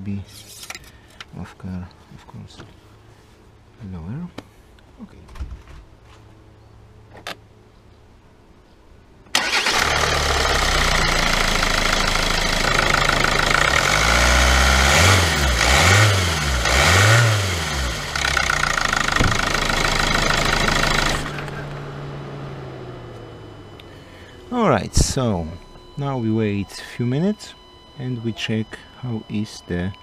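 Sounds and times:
diesel engine starting and idling: 9.3 - 29.2.

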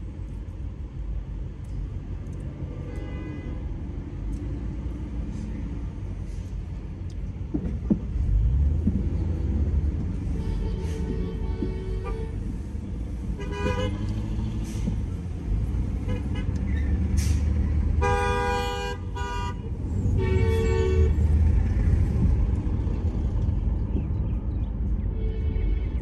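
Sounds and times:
road and engine rumble: 0.0 - 26.0
car horns honking: 10.2 - 12.7, 13.3 - 14.6, 17.9 - 21.2.

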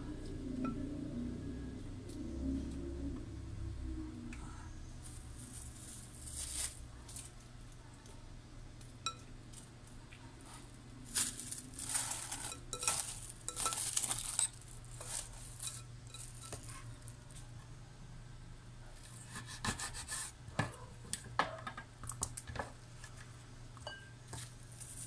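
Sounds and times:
cling wrap crinkling: 5.0 - 7.4, 10.5 - 17.5, 24.4 - 25.0.

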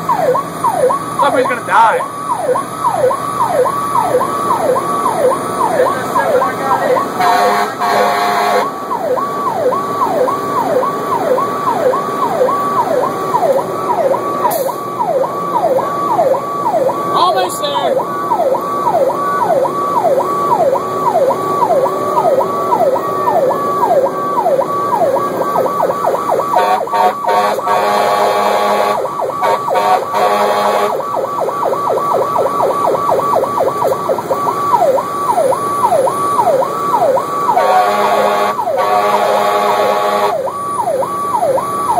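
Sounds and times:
emergency siren yelping: 0.0 - 41.9
vehicle horn: 7.2 - 8.7, 26.5 - 31.0, 37.6 - 40.4.

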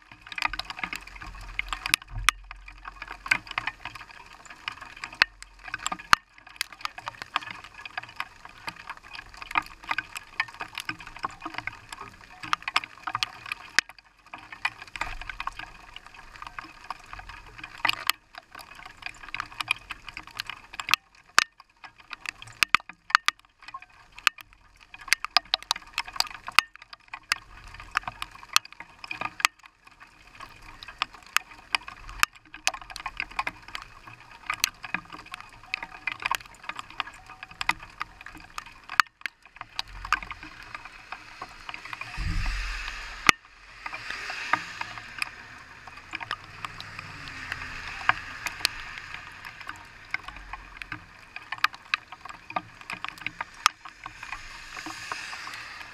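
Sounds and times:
rain ticking on car windshield: 0.0 - 55.9
steady rain hiss: 33.0 - 55.9.

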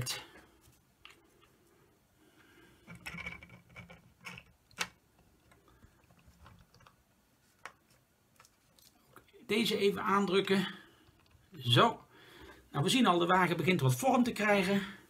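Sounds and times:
plastic parts clicking and tapping: 2.8 - 7.0.

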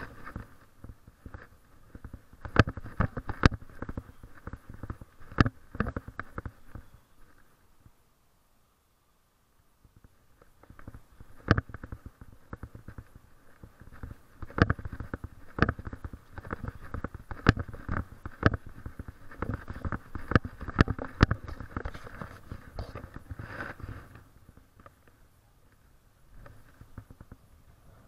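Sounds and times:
faint steady hiss: 0.0 - 28.0
footsteps on concrete: 10.6 - 24.2.

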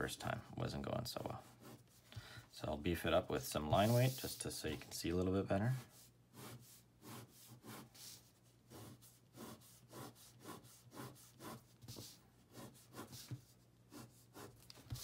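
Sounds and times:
pen scratching on paper: 5.9 - 15.0.

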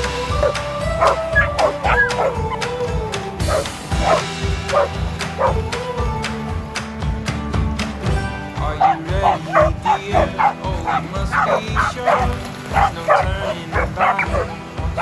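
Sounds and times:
background music with steady beat: 0.0 - 15.0
dogs barking: 0.3 - 2.8, 3.4 - 5.7, 8.7 - 15.0.

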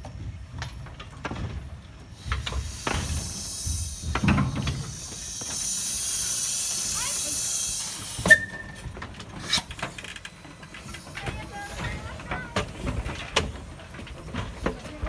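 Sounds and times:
steam hissing: 2.0 - 13.1.

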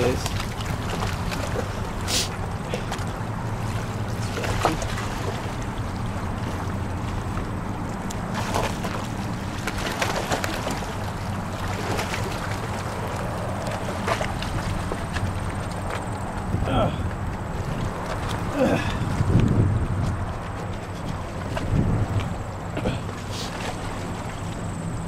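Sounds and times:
dog swimming splashes: 0.0 - 16.5
water lapping against rocky shore: 0.0 - 25.0
steady low rumble: 10.7 - 25.0.

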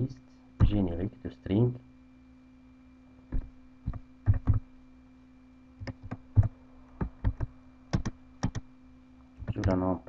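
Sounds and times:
faint steady hum: 0.0 - 10.0
keyboard keystroke clicks: 5.8 - 8.6, 9.4 - 9.8.

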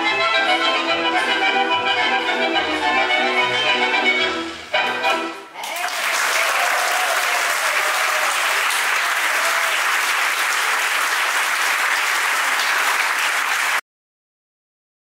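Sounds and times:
audience applauding: 5.6 - 13.8.

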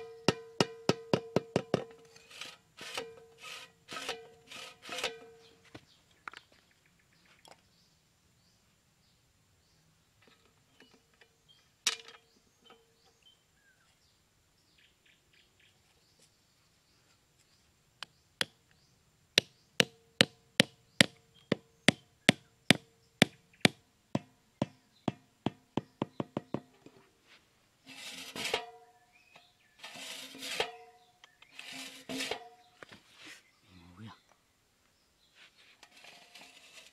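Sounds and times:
can scraping over sand: 2.1 - 5.5, 27.9 - 28.7, 29.6 - 33.5, 35.5 - 36.9.

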